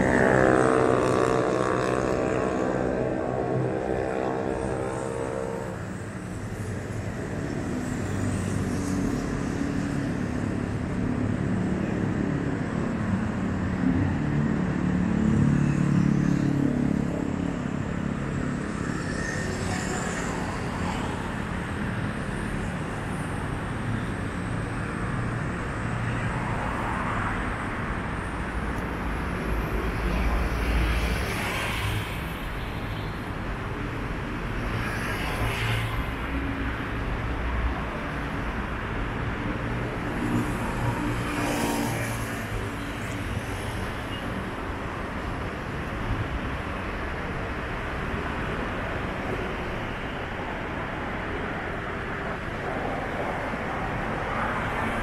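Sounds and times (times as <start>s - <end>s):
motorcycles passing: 0.0s - 12.4s
cars passing: 0.0s - 55.0s.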